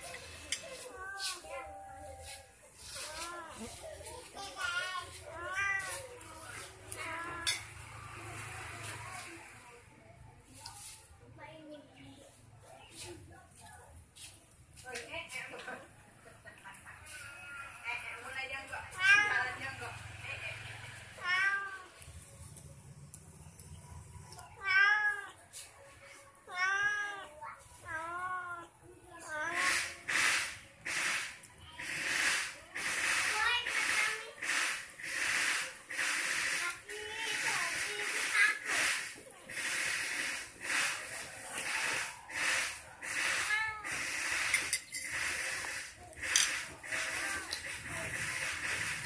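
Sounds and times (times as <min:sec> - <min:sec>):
cat meowing: 0:21.2 - 0:21.9, 0:24.6 - 0:25.4, 0:26.5 - 0:27.3
pulsing hissing noise: 0:29.5 - 0:49.0.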